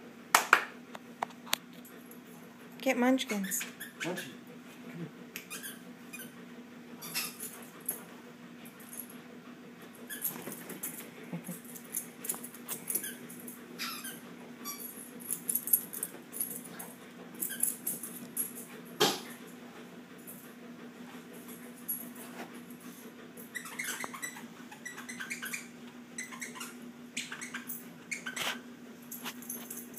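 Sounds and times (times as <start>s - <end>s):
dogs squeaking: 3.3s - 4.4s, 5.4s - 6.4s, 7.0s - 7.6s, 10.0s - 10.7s, 12.7s - 15.0s, 23.4s - 28.7s
dogs scuffling: 10.0s - 14.2s.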